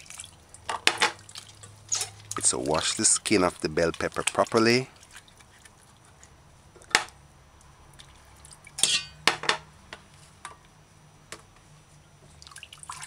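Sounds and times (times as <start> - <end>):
water splashing in bowl: 0.0 - 6.3, 7.9 - 9.1, 12.4 - 13.0
clinks against metal bowl: 8.8 - 9.3.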